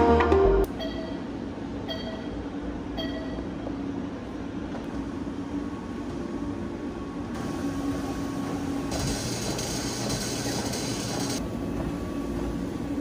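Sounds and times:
treadmill humming: 0:00.6 - 0:13.0
keypad electronic beep: 0:00.8 - 0:01.2, 0:01.9 - 0:02.3, 0:03.0 - 0:03.4.

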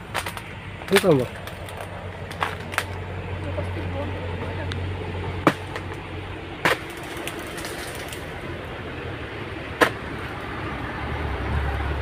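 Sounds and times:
sharp cracks of sickle cutting: 0:00.0 - 0:03.0, 0:05.4 - 0:08.4, 0:09.8 - 0:10.2.

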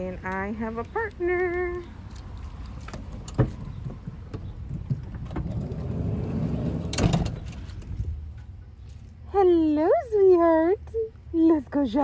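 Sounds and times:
van door clunk: 0:02.8 - 0:08.2
sliding van door rumbling: 0:04.4 - 0:07.9.

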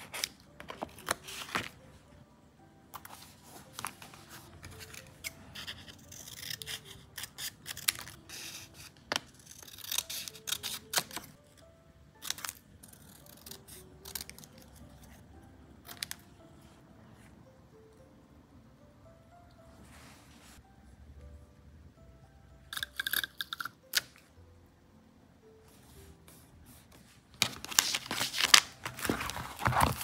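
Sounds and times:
paper rustling: 0:00.0 - 0:01.8, 0:27.4 - 0:30.0
soft background music: 0:00.0 - 0:30.0.

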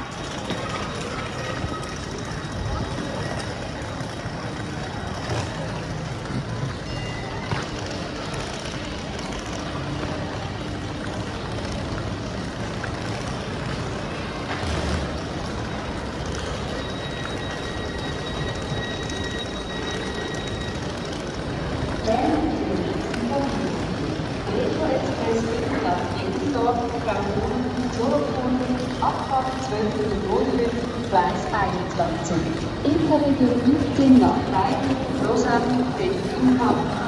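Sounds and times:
high steady tone: 0:16.6 - 0:22.6.

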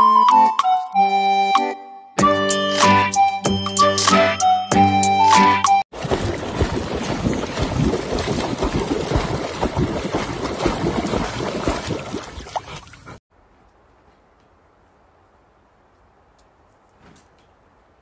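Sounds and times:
dog paddling and splashing water: 0:05.9 - 0:13.2.

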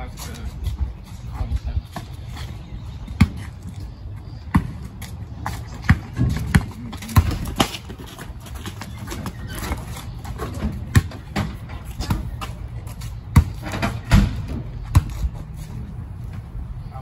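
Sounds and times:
basketball bouncing on concrete: 0:01.9 - 0:15.4.

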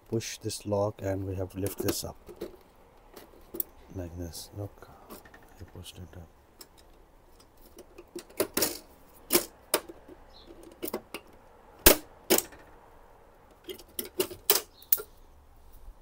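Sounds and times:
plastic covers clicking: 0:01.6 - 0:03.8, 0:06.6 - 0:12.7, 0:13.5 - 0:15.1.

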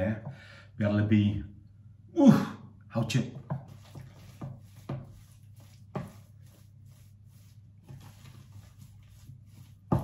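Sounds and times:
spatula scraping thick paste: 0:03.6 - 0:10.0.

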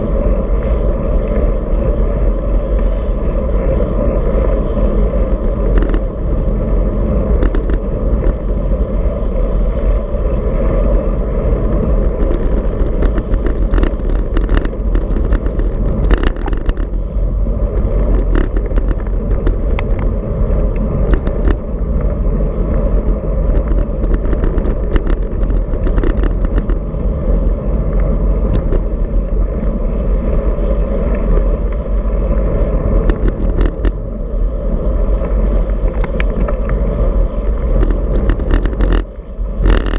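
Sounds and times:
road noise: 0:00.0 - 0:39.9
wind rumbling on microphone: 0:00.0 - 0:39.9
sharp clicks and rattles: 0:05.0 - 0:08.6, 0:10.7 - 0:22.1, 0:22.8 - 0:29.5, 0:32.8 - 0:34.0, 0:37.5 - 0:39.9.

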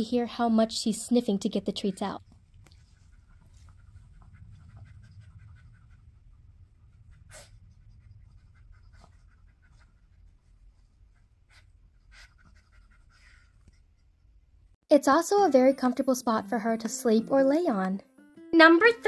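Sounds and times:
dog sniffing: 0:01.8 - 0:14.2.

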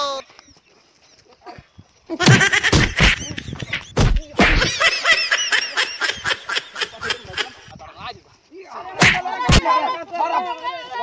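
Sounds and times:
person laughing hard: 0:02.1 - 0:07.7
heavy thumps: 0:02.2 - 0:04.9, 0:09.0 - 0:09.6.

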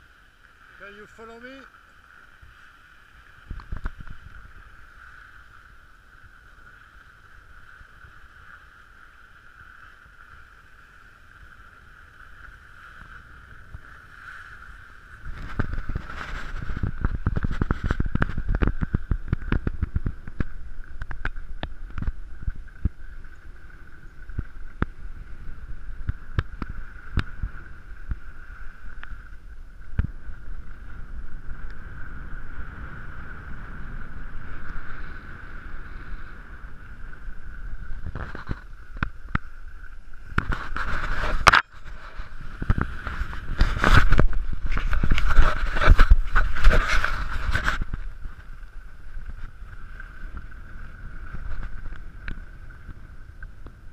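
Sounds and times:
skis scraping over snow: 0:00.0 - 0:53.9
wind rushing over microphone: 0:12.8 - 0:53.9.

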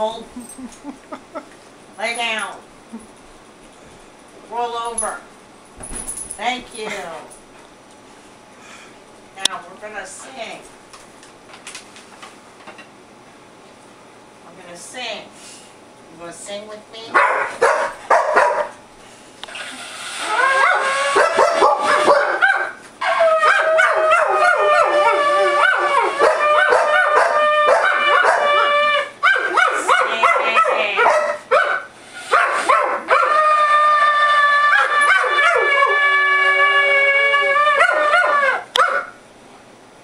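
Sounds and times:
dog howling with yips: 0:20.2 - 0:39.1.

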